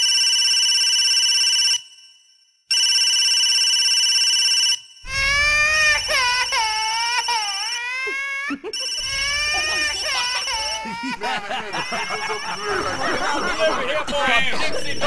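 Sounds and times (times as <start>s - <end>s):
telephone ringing: 2.7s - 15.0s
high-pitched sliding voice: 5.1s - 13.2s.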